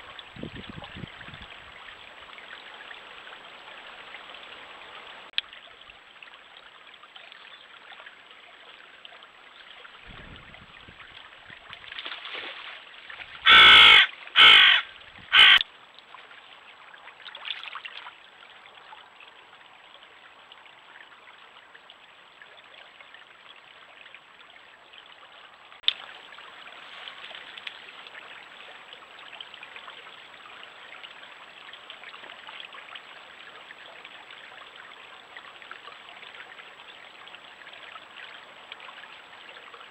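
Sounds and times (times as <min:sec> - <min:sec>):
stream running: 0:00.0 - 0:39.9
harsh animal calls: 0:13.4 - 0:15.6.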